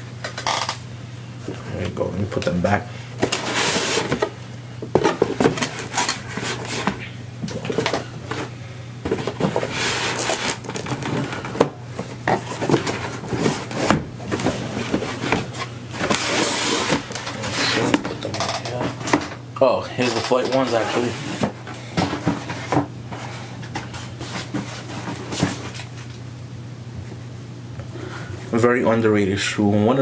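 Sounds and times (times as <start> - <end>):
shoes rustling in cardboard box: 3.2 - 8.5, 12.0 - 18.0.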